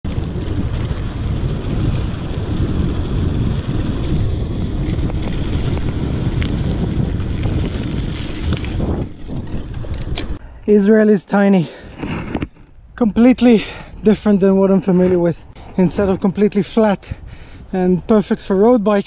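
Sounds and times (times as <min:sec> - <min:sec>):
wind buffeting microphone: 0:00.0 - 0:10.9, 0:11.6 - 0:19.0
tyres rumbling on gravel: 0:00.0 - 0:11.2, 0:11.8 - 0:17.0
bike clicks and rattles: 0:00.1 - 0:10.5.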